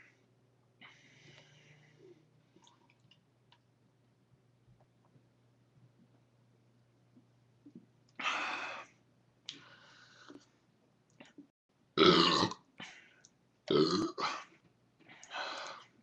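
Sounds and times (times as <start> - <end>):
man breathing: 9.5 - 10.5
man belching loudly: 12.0 - 12.6, 13.7 - 14.2.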